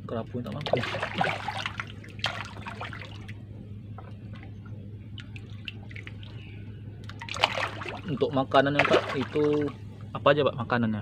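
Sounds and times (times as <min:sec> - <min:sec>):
steady low hum: 0:00.0 - 0:11.0
fish splashing at water surface: 0:00.6 - 0:03.4, 0:05.2 - 0:06.4, 0:07.0 - 0:09.8.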